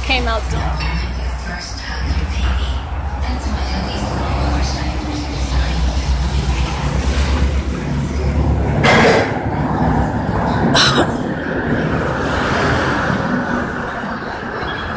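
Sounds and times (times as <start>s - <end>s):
steady low rumble: 0.0s - 14.6s.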